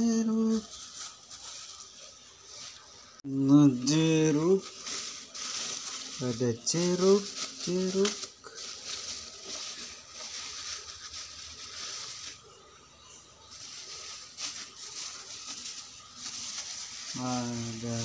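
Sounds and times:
plastic bags rustling: 0.0 - 12.7, 13.4 - 18.0.

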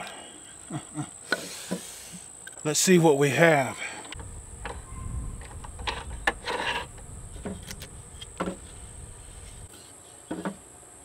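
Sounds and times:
high-pitched whine: 4.2 - 9.7
low rumble: 4.2 - 9.7.

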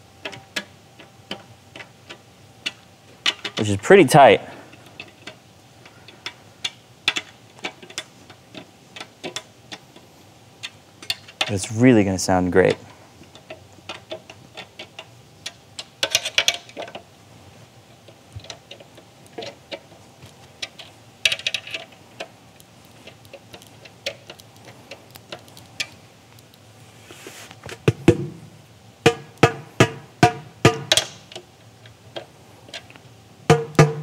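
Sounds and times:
taps on snare drum head: 27.8 - 28.4, 29.0 - 31.2, 33.5 - 34.0.

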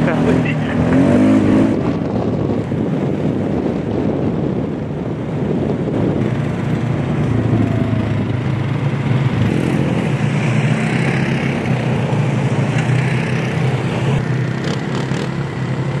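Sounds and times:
quad bike engines running: 0.0 - 16.0.

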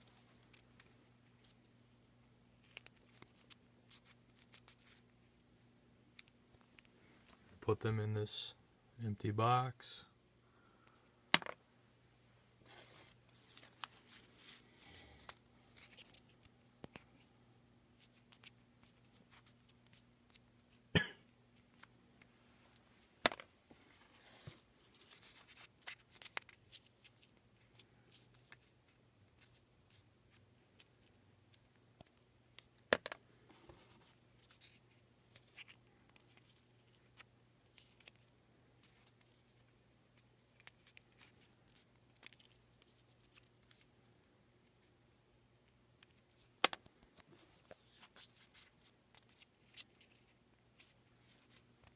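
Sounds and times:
paper rustling and creasing: 12.6 - 17.3.

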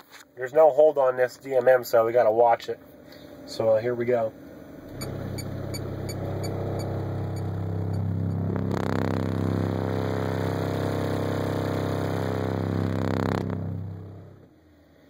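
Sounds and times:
subwoofer test tone drone: 4.3 - 15.0.

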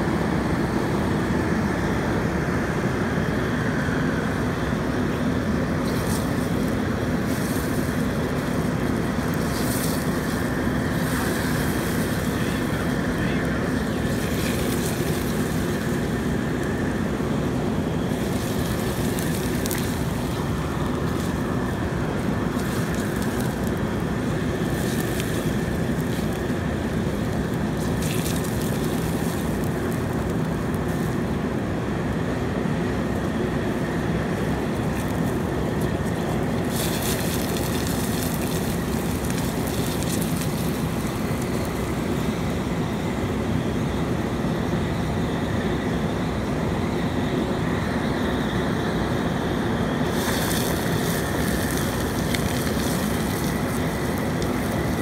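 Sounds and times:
high hiss of fire: 0.1 - 55.0
oil fire rushing: 5.5 - 43.0.

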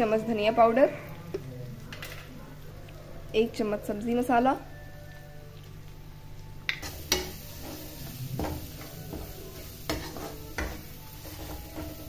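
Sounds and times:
spices sizzling in oil: 6.7 - 12.0
metal spatula scraping a pan: 6.8 - 12.0.

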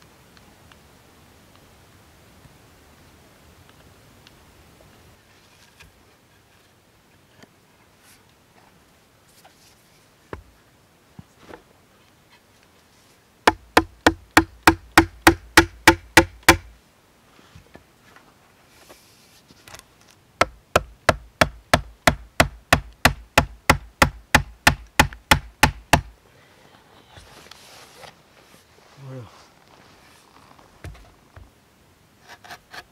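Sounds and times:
wooden mallet striking stake: 13.5 - 16.7, 20.4 - 26.1.

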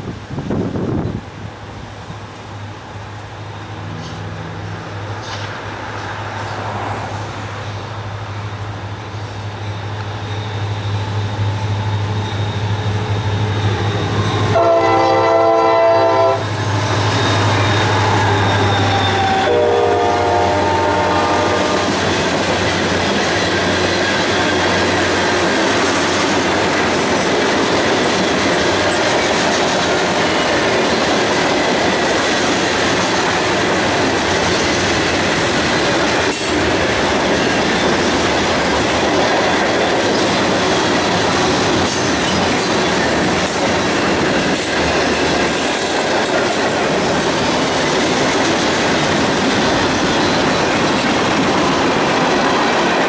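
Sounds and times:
diesel train engine hum: 0.0 - 53.0
train wheels on rails: 0.0 - 53.0
train air horn blasts: 14.3 - 16.6, 17.6 - 22.1.

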